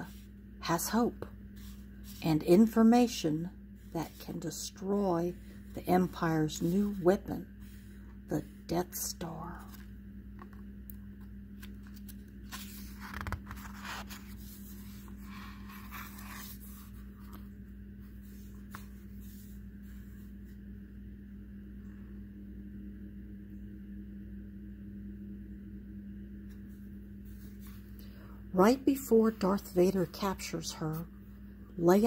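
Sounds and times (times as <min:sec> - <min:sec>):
steady low hum: 0:00.0 - 0:32.0
paper page rustling: 0:11.2 - 0:20.6.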